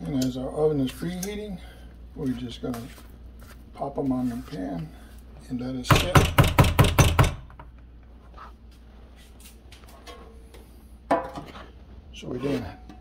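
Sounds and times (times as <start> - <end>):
spatula knocking mixing bowl: 5.9 - 7.6.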